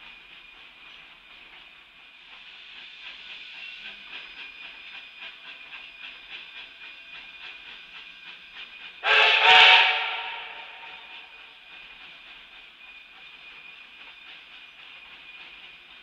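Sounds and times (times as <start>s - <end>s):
steam train clattering: 0.0s - 16.0s
steam whistle blast: 9.0s - 11.3s.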